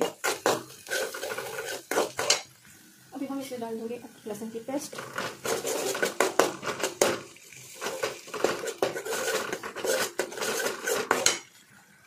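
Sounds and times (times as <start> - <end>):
spoon scraping a metal pan: 0.0 - 2.5, 4.9 - 11.6
onions frying in oil: 0.0 - 12.0.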